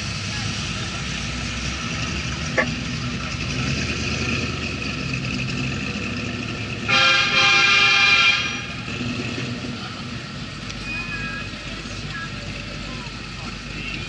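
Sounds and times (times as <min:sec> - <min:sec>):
vehicle engine running: 0:00.0 - 0:14.0
loud many-toned horn blast: 0:06.8 - 0:08.9.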